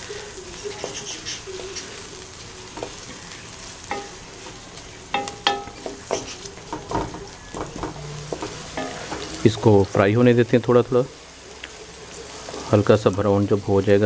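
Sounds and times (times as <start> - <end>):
onions sizzling in hot oil: 0.0 - 14.0
spatula knocking against metal pan: 3.9 - 9.4.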